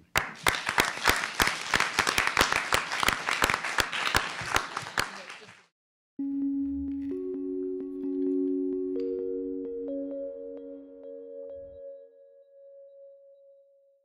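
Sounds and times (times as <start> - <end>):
audience applause: 0.0 - 5.7
held musical notes: 6.2 - 13.5.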